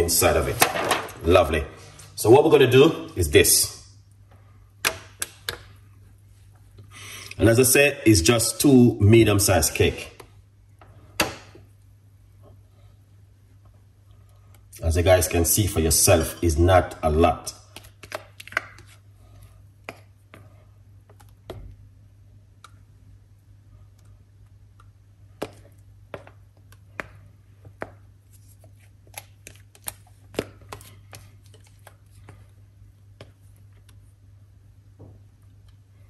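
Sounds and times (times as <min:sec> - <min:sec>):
low steady hum: 0:00.0 - 0:36.0.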